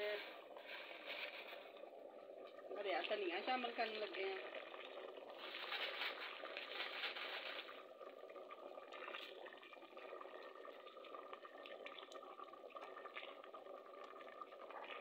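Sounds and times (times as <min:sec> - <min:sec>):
curry bubbling in a metal pot: 0:00.0 - 0:15.0
wooden spoon stirring: 0:05.3 - 0:07.9.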